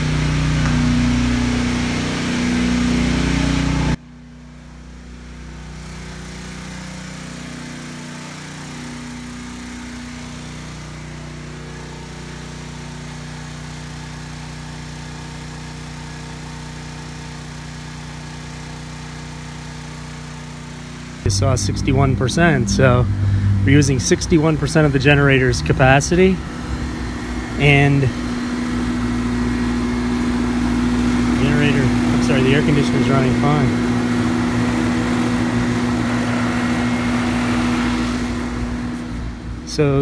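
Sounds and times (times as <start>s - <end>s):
portable generator running: 0.0s - 4.0s, 5.2s - 40.0s
air conditioner unit humming: 21.3s - 40.0s.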